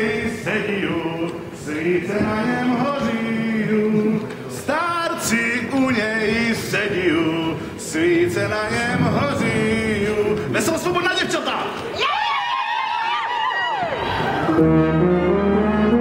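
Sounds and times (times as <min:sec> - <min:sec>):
man singing unaccompanied: 0:00.0 - 0:11.2.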